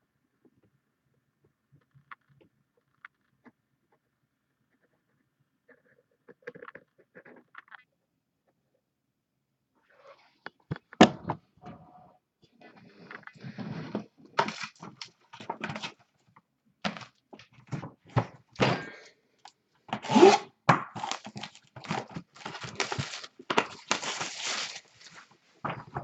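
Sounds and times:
packaging rustling and tearing: 0:14.4 - 0:16.0, 0:21.0 - 0:26.0.

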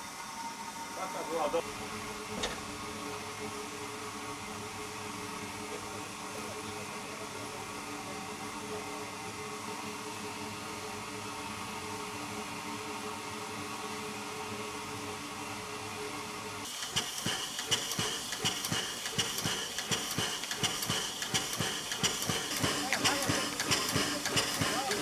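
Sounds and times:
steam hissing from locomotive: 0:00.0 - 0:25.0.

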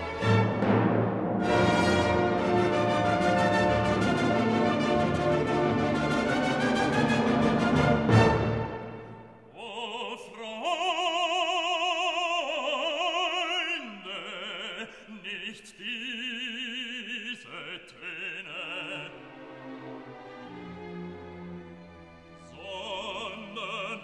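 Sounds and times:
operatic voice singing: 0:09.5 - 0:19.4, 0:22.4 - 0:24.0.

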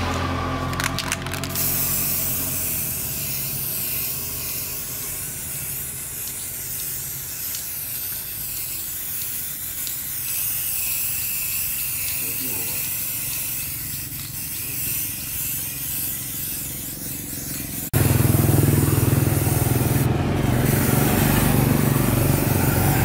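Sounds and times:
low motor hum: 0:00.0 - 0:07.3, 0:13.2 - 0:23.0
hissing spray: 0:01.4 - 0:23.0.

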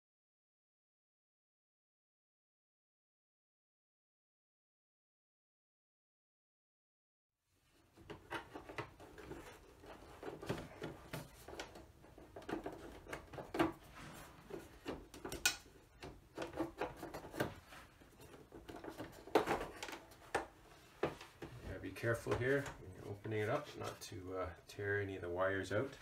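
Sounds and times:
plastic casing clicks and knocks: 0:18.6 - 0:20.5.

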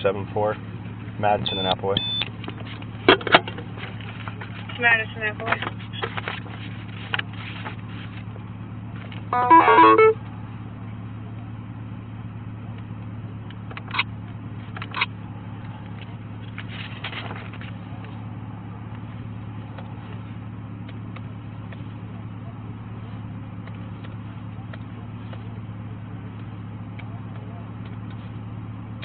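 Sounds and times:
low hum inside car: 0:00.0 - 0:29.0
short beeps: 0:09.3 - 0:10.2
quick run of electronic tones: 0:09.4 - 0:10.2.

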